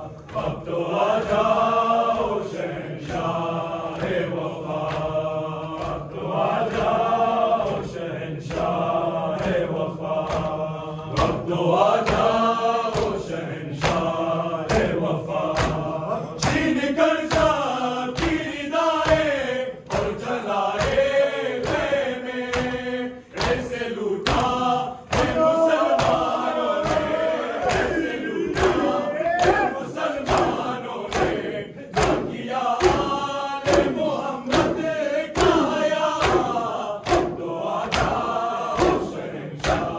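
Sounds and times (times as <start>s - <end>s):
hands slapping chests: 0.0s - 39.9s
men chanting together: 0.0s - 39.9s.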